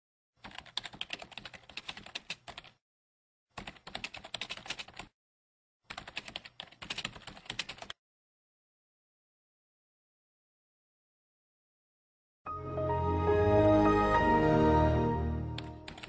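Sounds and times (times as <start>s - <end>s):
keyboard typing clicks: 0.4s - 2.8s, 3.6s - 5.1s, 5.9s - 8.0s, 15.5s - 16.0s.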